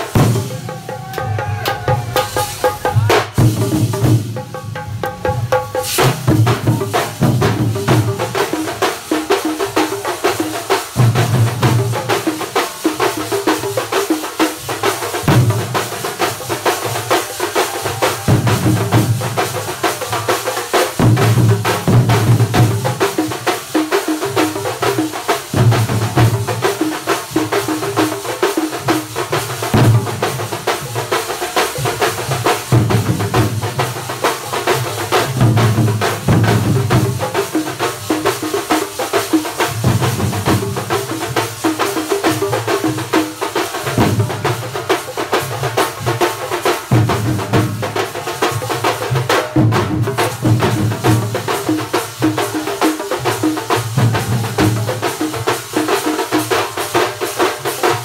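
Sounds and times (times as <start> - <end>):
percussion band drumming: 0.0 - 58.0.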